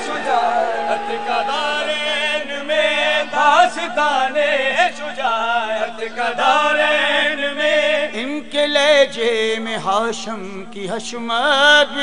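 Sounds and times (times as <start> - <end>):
men chanting devotional poem: 0.0 - 12.0.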